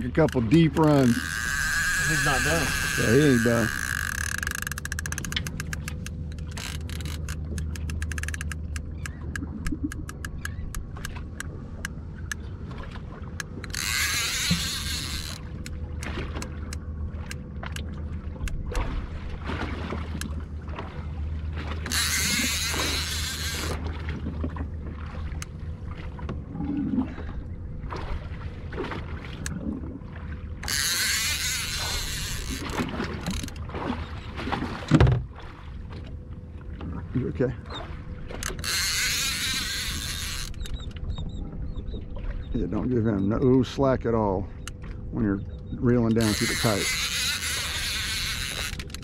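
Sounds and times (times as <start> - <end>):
low steady hum: 0.0 - 49.0.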